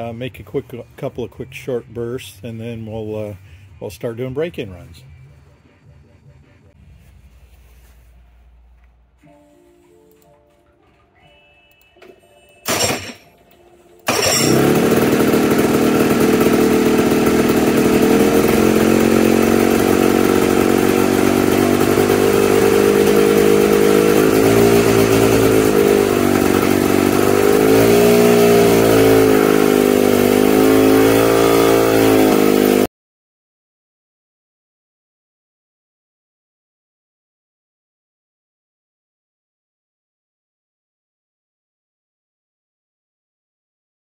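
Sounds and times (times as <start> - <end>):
two-stroke engine running: 12.7 - 13.2, 14.0 - 32.9.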